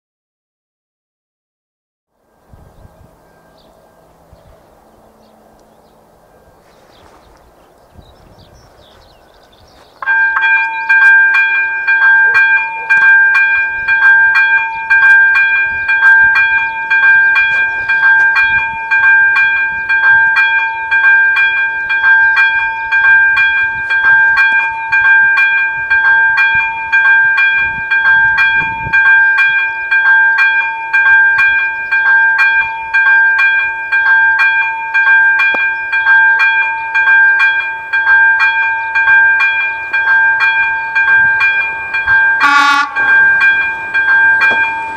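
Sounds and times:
electronic level crossing bell: 10.0 - 44.9.

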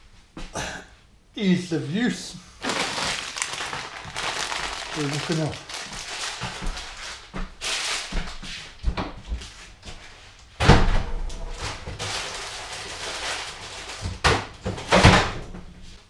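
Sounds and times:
kitchen knocks and rustling: 2.7 - 12.4, 13.9 - 15.8.

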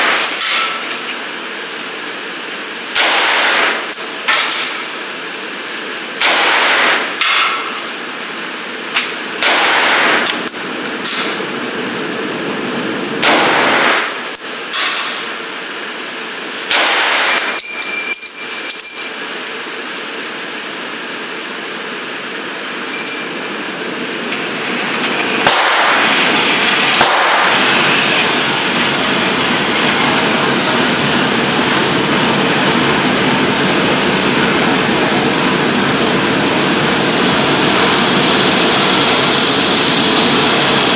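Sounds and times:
rifle shots echoing indoors: 3.0 - 3.8, 6.2 - 7.4, 9.4 - 10.2, 13.2 - 14.1, 16.7 - 17.4, 25.4 - 26.0, 27.0 - 27.6
steady rushing noise: 20.5 - 40.9.

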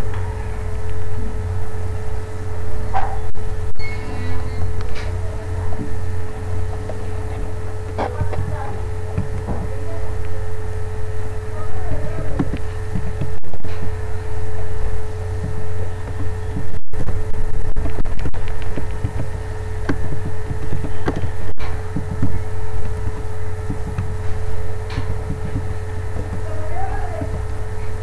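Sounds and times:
low hum: 0.0 - 28.0
constant high tone: 2.6 - 18.0.

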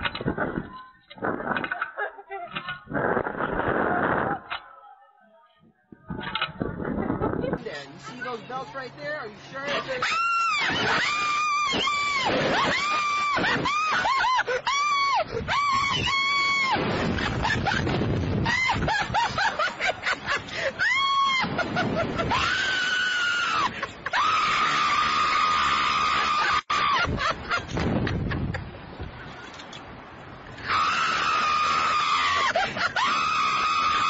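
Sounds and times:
wind on microphone: 0.0 - 4.7, 5.6 - 7.9, 15.2 - 19.9, 27.0 - 30.5
people screaming: 10.0 - 17.8, 18.4 - 19.6, 20.6 - 27.6, 30.6 - 34.0.

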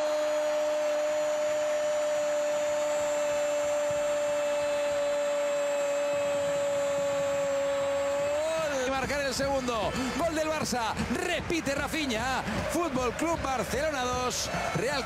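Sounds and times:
commentator's long held shout: 0.0 - 10.6
stadium crowd noise: 0.0 - 15.0.

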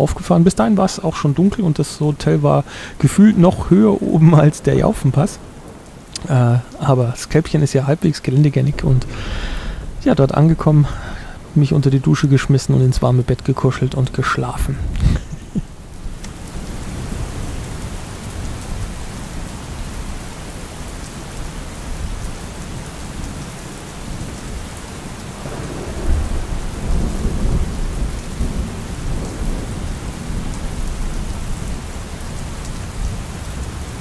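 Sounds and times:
steady rain: 0.0 - 34.0
deep rumble of thunder: 8.6 - 13.4, 25.2 - 33.6.

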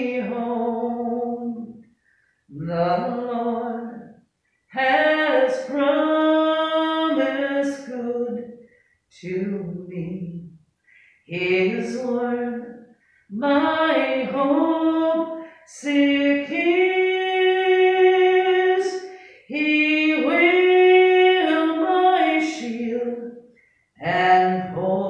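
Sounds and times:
woman singing a hymn: 0.0 - 1.8, 2.5 - 10.6, 11.3 - 25.0
singer breathing: 1.8 - 2.5, 8.6 - 9.1, 10.8 - 11.3, 12.9 - 13.3, 15.4 - 15.7, 19.0 - 19.5, 23.5 - 24.0.

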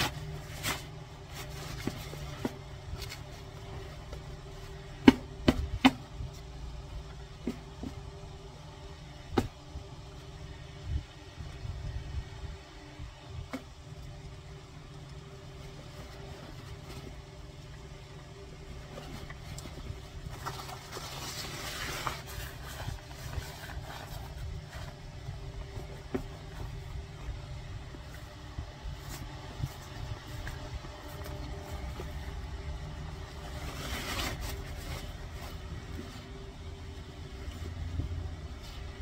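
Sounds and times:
fabric rustling: 15.5 - 39.0.

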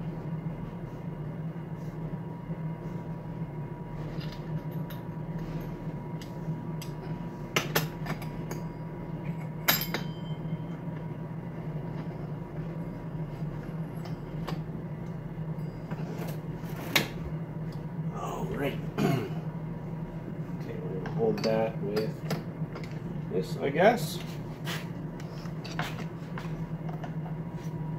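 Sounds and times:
steady hum: 0.0 - 27.9.

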